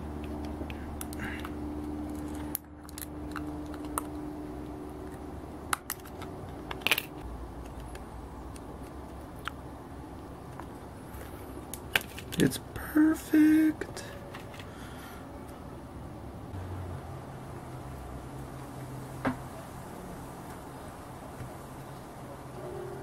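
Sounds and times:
low steady hum: 0.0 - 23.0
plastic parts clicking: 5.1 - 9.0.

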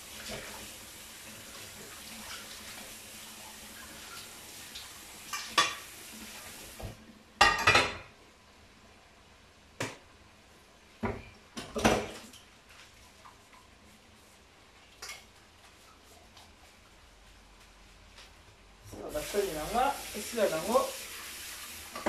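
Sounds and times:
dishes clattering in metal sink: 5.3 - 5.9, 7.4 - 8.1, 11.0 - 12.4.

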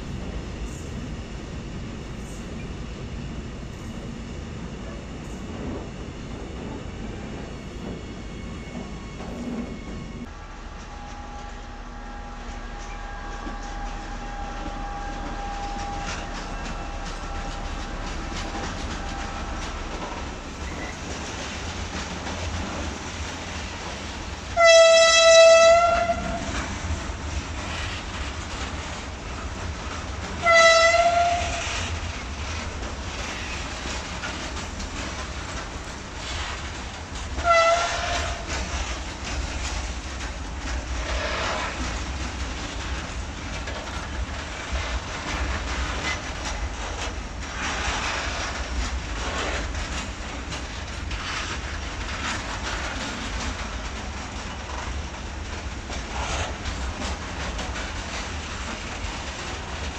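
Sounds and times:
freight train rumbling past: 0.0 - 59.9
train horn blasts: 10.3 - 19.9, 24.5 - 26.7, 30.4 - 31.9, 37.4 - 38.7.

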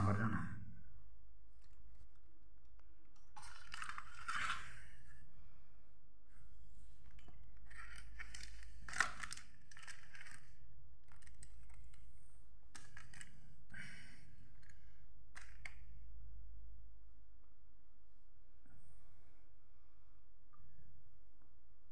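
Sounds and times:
aluminium foil crinkling: 3.4 - 4.8, 7.7 - 10.4.

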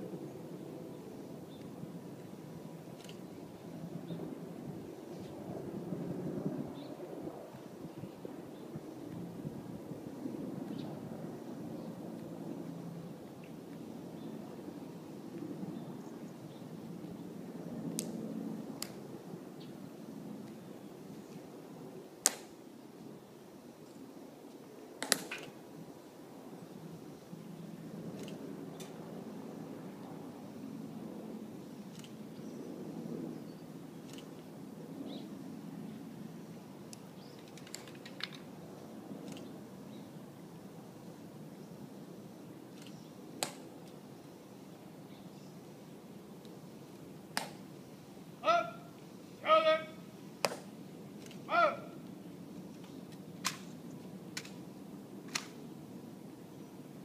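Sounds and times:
sharp clicks: 25.0 - 25.5, 31.9 - 32.2, 55.3 - 55.6
short loud call: 48.4 - 50.1, 51.5 - 52.0.

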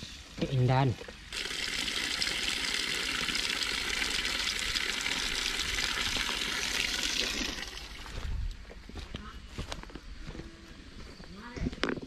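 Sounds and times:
water pouring and splashing on ground: 1.3 - 8.3.

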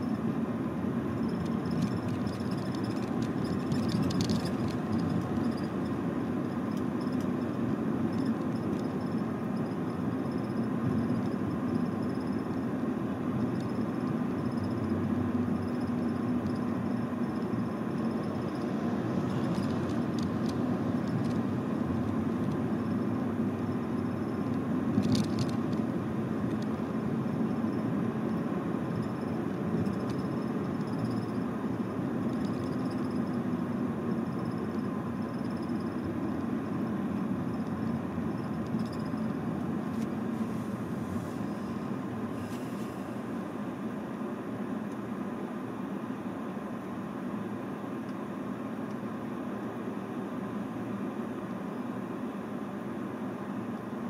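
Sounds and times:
road traffic noise: 0.0 - 54.0.

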